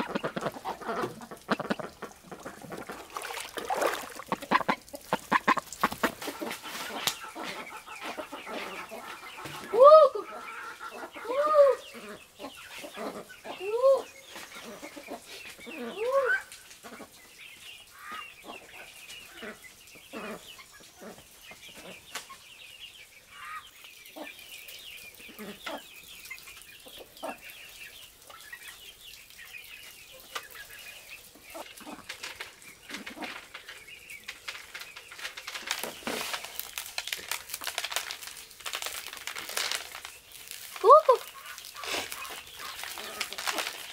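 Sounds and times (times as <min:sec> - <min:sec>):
crinkling rustle: 0:00.0 - 0:08.7, 0:31.6 - 0:43.9
chickens clucking: 0:00.0 - 0:38.2, 0:38.8 - 0:43.9.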